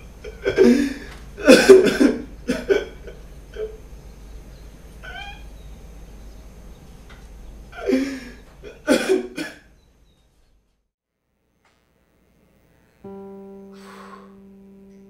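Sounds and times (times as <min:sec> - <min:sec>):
person coughing hard: 0:00.5 - 0:02.9, 0:08.7 - 0:09.7
short rising vocal sound: 0:13.7 - 0:14.6.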